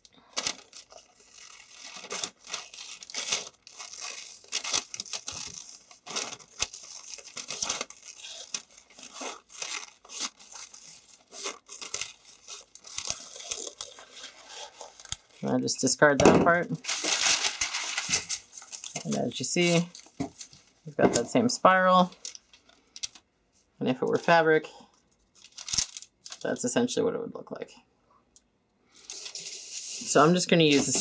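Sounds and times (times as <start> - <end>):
paper rustling and crinkling: 0.3 - 15.6, 16.7 - 21.3, 25.3 - 26.4, 29.0 - 31.0.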